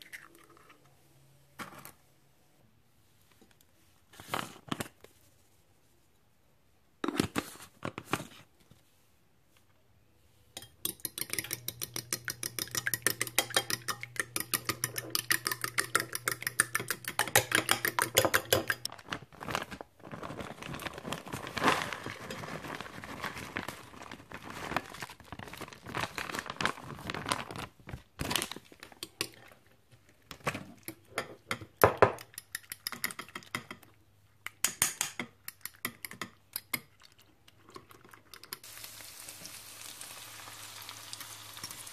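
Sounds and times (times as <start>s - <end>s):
fork beating eggs in bowl: 10.6s - 18.9s, 30.7s - 37.0s
fork clinking and scraping: 10.6s - 18.9s
plastic bag rustling: 18.9s - 29.0s.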